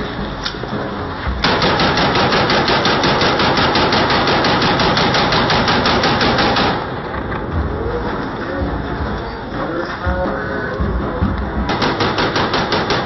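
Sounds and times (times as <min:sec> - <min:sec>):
rifle automatic gunfire: 0:01.4 - 0:07.0, 0:11.7 - 0:13.0.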